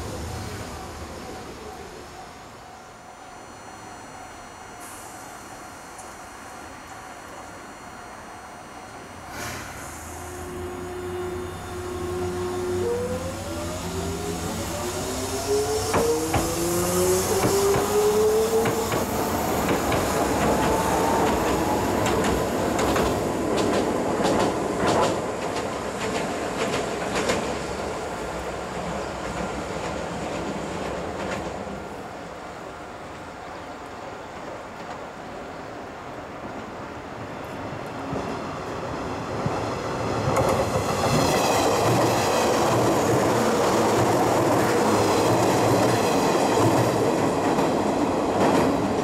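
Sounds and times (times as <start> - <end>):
tram motors whining: 0.8 - 23.8.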